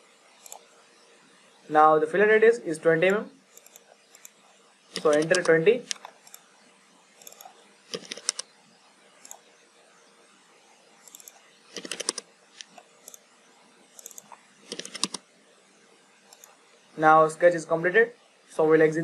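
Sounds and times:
mouse clicks: 3.6s - 6.4s, 7.2s - 8.5s, 11.1s - 13.2s, 14.0s - 15.2s.

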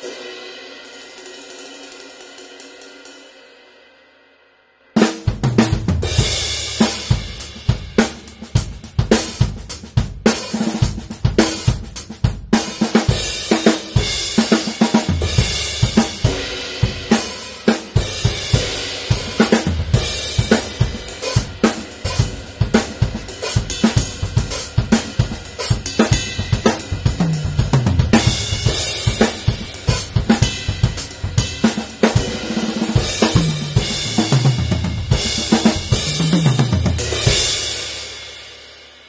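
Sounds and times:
drum kit groove: 0.0s - 3.4s, 5.0s - 39.0s
tom drum fills: 13.0s - 37.8s.

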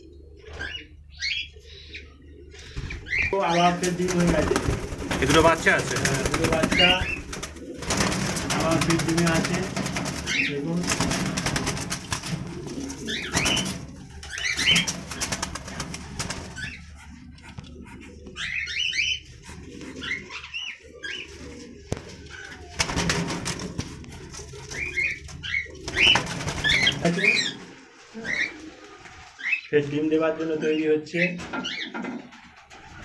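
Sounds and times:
wings flapping against cage wire: 3.8s - 17.0s, 21.9s - 27.2s
cockatiels chirping: 13.0s - 14.9s, 16.6s - 19.4s, 20.0s - 21.3s.

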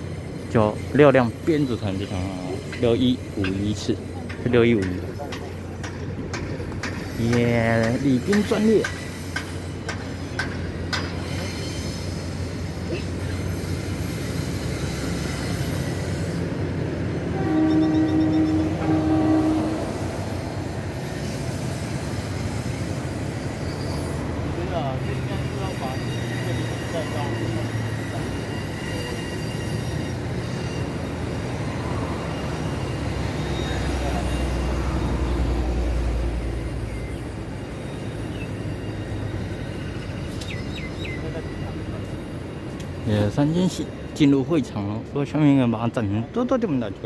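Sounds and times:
diesel train engine rumble: 0.0s - 47.0s
train horn blasts: 17.2s - 20.8s.

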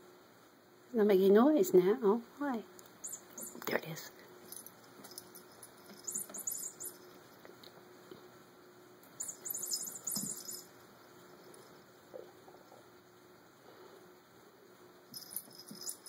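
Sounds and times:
cat toy rattling and jingling: 4.4s - 7.4s, 9.2s - 10.7s, 15.1s - 16.0s.

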